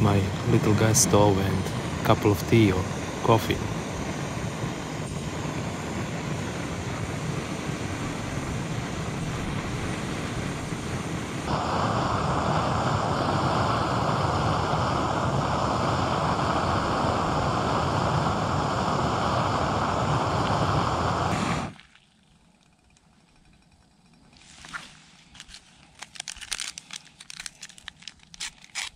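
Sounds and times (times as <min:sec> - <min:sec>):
gas stove burner hissing: 0:00.0 - 0:21.8.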